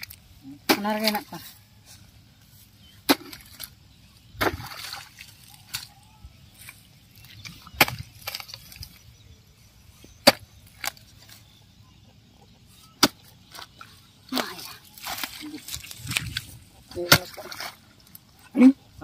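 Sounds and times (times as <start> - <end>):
hoe chopping into muddy soil: 3.0 - 3.8, 4.4 - 5.9, 7.4 - 9.0, 10.2 - 11.1, 13.0 - 13.7, 17.0 - 17.8.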